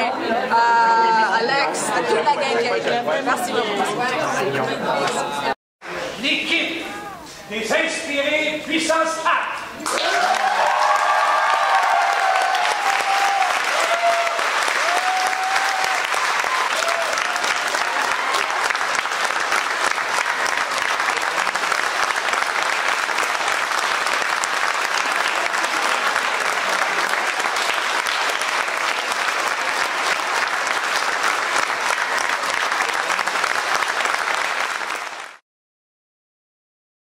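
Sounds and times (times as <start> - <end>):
audience applauding: 9.8 - 35.4.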